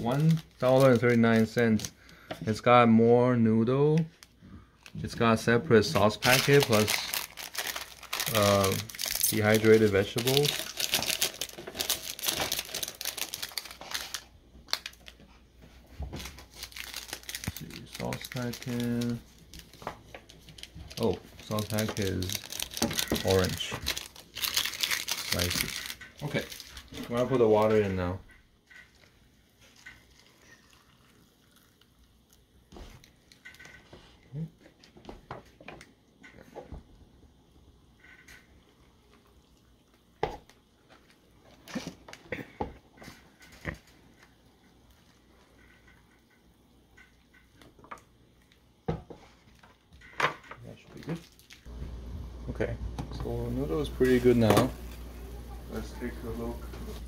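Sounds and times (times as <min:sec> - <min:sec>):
plastic packet crinkling: 0:00.0 - 0:02.2, 0:05.8 - 0:15.2, 0:16.2 - 0:28.0, 0:51.0 - 0:51.7
hot water pouring into cups: 0:28.9 - 0:33.3.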